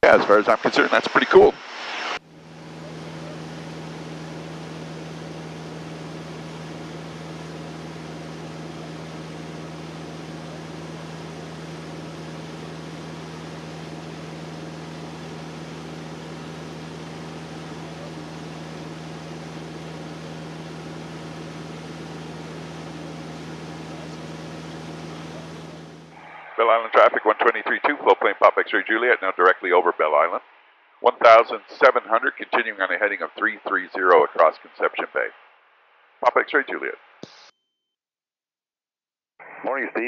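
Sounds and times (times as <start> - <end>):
plane engine droning: 0.0 - 30.4.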